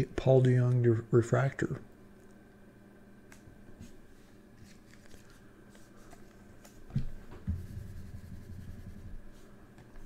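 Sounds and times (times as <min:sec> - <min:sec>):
cards rustling and clicking: 0:04.6 - 0:06.8.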